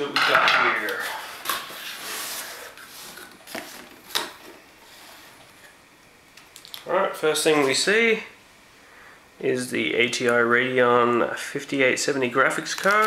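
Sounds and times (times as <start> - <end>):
cardboard rustling and scraping: 0.6 - 5.7.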